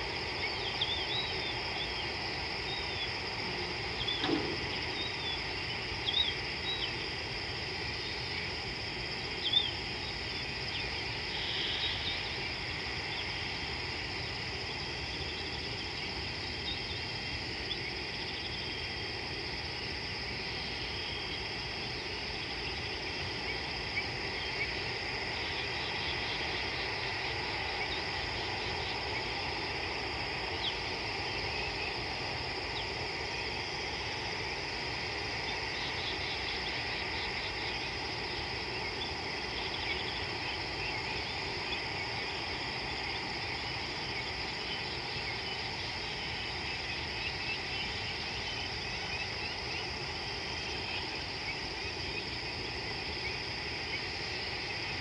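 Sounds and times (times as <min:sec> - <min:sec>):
insects chorus: 0:00.0 - 0:55.0.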